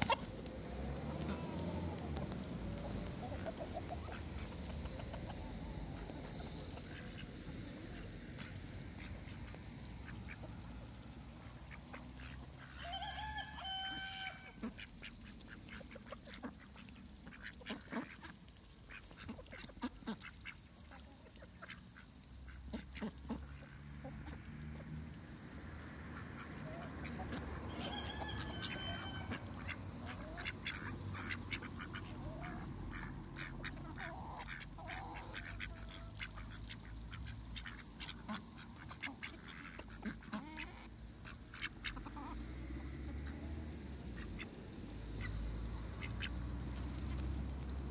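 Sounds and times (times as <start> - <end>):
bills and beaks pecking grain: 0.0 - 47.9
duck call: 27.7 - 29.7.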